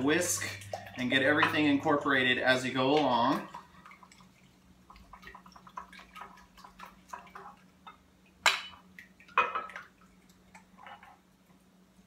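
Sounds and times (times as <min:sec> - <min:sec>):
glass dishes clinking: 0:01.3 - 0:01.7.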